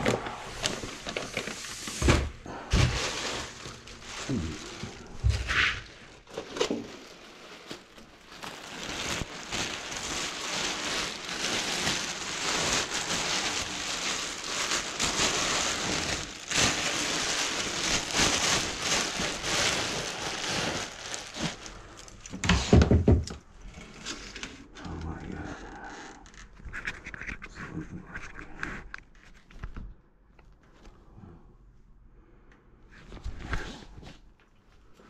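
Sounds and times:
plastic sheet crinkling: 0.0 - 22.8.

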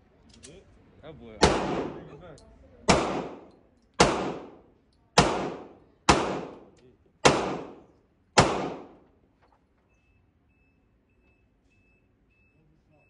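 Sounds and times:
gunshots echoing indoors: 1.4 - 2.2, 2.8 - 9.1
faint high beep: 9.8 - 13.0.

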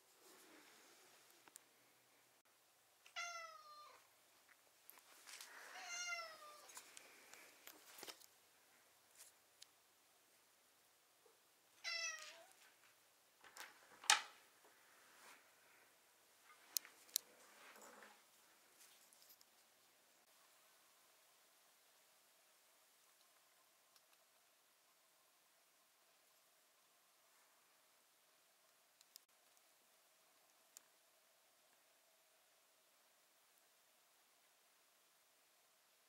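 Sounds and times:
cat meowing: 3.1 - 4.0, 5.7 - 6.7, 11.8 - 12.6.

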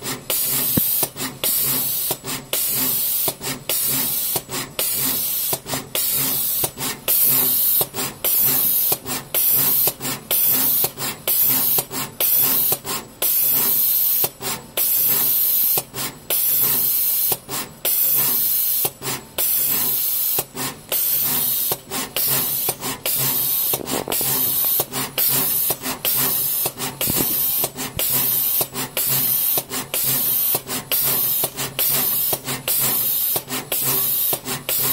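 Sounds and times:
air hissing: 16.4 - 34.8.

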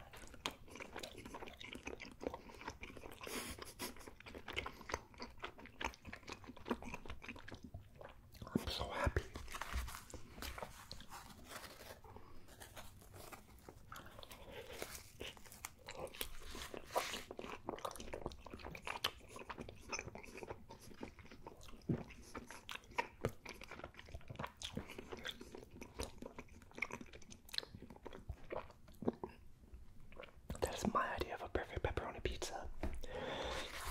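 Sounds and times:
person chewing crunchy food: 0.0 - 31.0, 32.8 - 33.9.

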